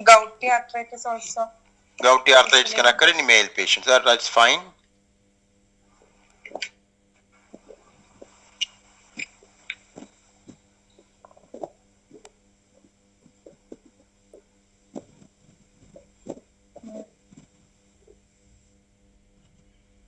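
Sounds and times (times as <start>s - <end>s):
steady electrical hum: 0.0s - 20.0s.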